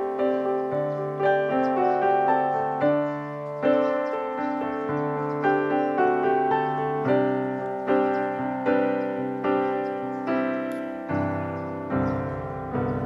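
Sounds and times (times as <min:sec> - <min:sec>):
gentle piano music: 0:00.0 - 0:13.0.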